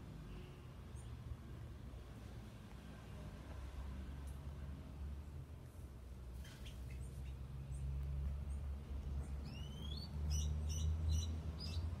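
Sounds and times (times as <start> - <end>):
small birds chirping: 6.3 - 12.0.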